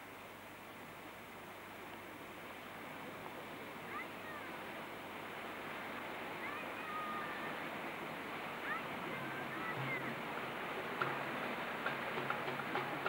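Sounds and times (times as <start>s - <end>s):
water rushing past a boat: 0.0s - 13.0s.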